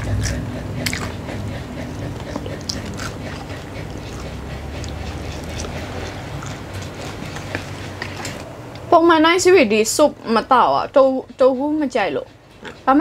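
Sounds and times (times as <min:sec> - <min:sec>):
chewing crispy fried chicken: 0:00.0 - 0:08.4.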